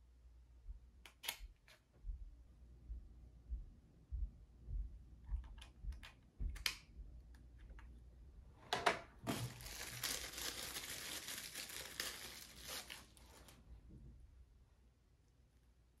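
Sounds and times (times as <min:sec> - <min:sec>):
plastic packaging crinkling and tearing: 0:09.3 - 0:13.6.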